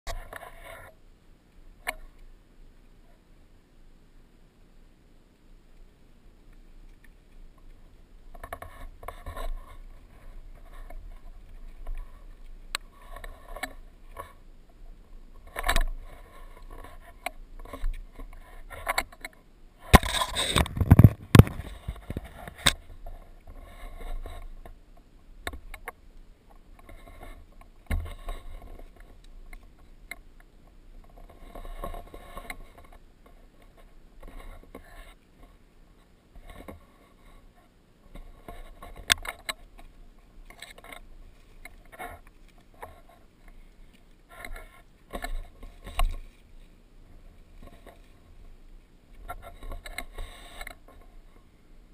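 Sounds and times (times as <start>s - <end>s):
boots and hands scraping rock: 19.9s - 24.7s.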